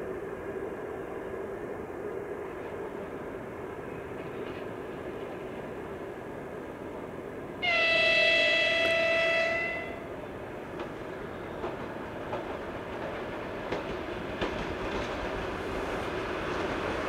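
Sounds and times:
passenger train running: 0.0s - 17.0s
locomotive horn blast: 7.6s - 10.2s.

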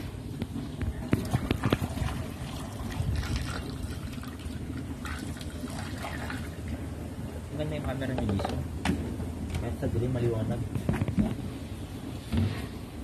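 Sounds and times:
milk trickling and splashing: 1.0s - 6.9s.

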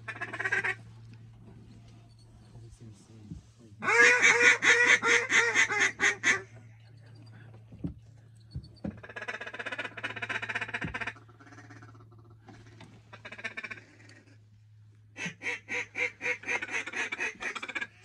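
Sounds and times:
duck call quacks: 0.0s - 0.8s, 3.8s - 6.5s, 9.0s - 14.2s, 15.2s - 18.0s.

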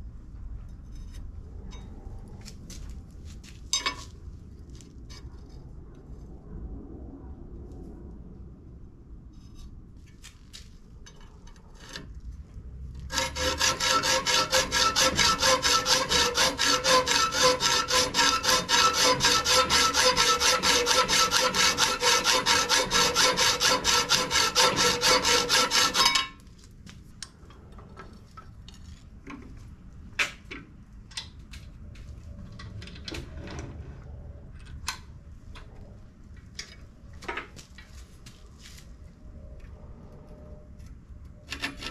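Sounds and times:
clicks and knocks handling metal: 3.7s - 5.3s, 10.0s - 12.2s, 34.5s - 38.0s
hacksaw rasping through metal: 11.8s - 12.1s, 13.1s - 26.4s, 41.5s - 41.9s.

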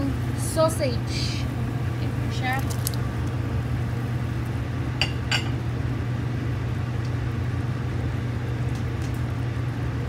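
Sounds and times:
pot of broth boiling: 0.0s - 5.0s
gas stove low hum: 0.0s - 10.0s.

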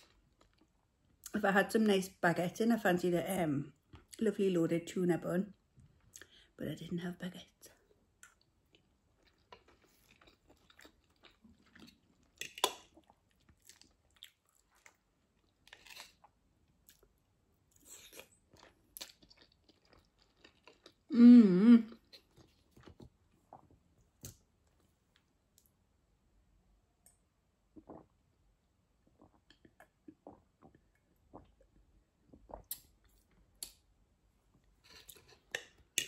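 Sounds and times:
chewing and wet mouth sounds: 8.2s - 21.1s.

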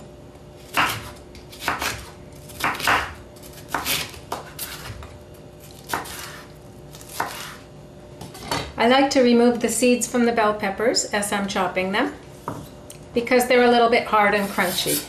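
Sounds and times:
knife slicing pepper on wooden board: 0.6s - 5.1s, 5.7s - 7.6s, 14.4s - 15.0s.

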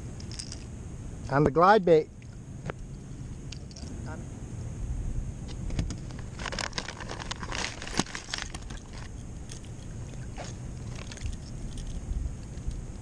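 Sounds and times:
steady low rumble: 0.0s - 13.0s
crackling crunching handling clicks: 5.6s - 13.0s.

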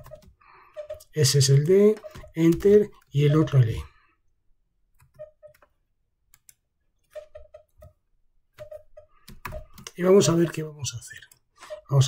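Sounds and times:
keyboard keys clicking: 0.0s - 0.4s, 8.6s - 10.6s.

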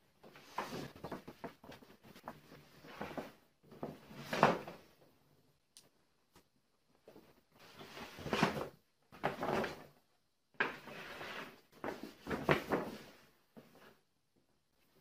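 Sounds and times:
paper rustling and crackling: 10.7s - 13.3s.

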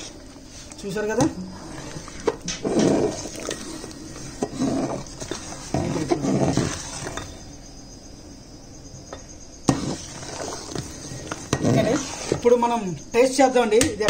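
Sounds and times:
ladle squelching in thick dal: 0.0s - 7.2s, 9.8s - 12.4s.

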